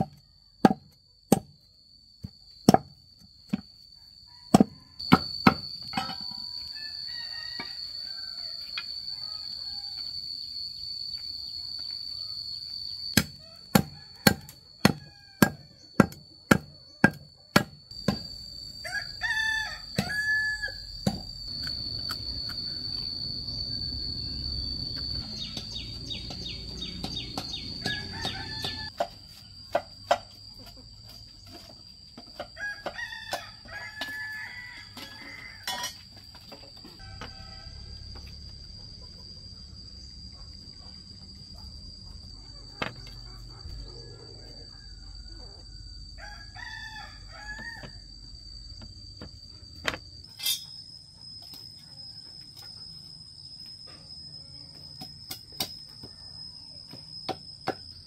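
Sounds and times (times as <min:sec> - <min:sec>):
insect trill: 0:00.0 - 0:58.0
rooster crowing: 0:03.9 - 0:11.1, 0:12.1 - 0:16.0, 0:18.2 - 0:29.0, 0:32.4 - 0:36.0, 0:37.0 - 0:38.9, 0:42.8 - 0:48.2.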